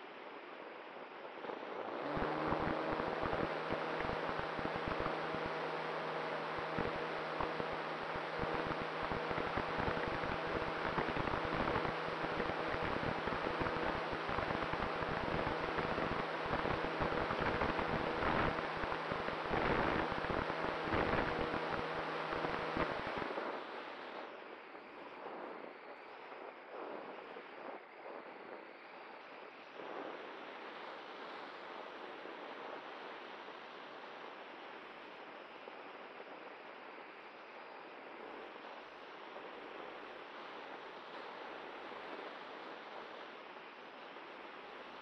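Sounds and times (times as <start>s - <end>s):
faint steady hum: 0.0s - 45.0s.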